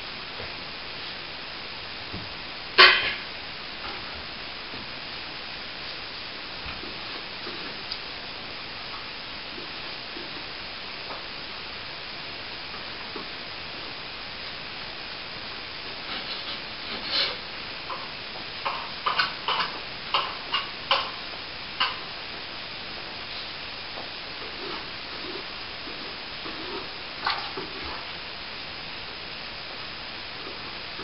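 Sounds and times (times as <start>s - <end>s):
steady hiss: 0.0s - 31.0s
plastering tools scraping: 16.1s - 17.4s.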